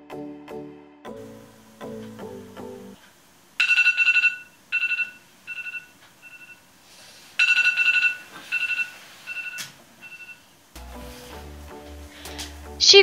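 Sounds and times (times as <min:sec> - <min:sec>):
electronic alarm beeping: 0:03.6 - 0:06.6, 0:07.4 - 0:10.5.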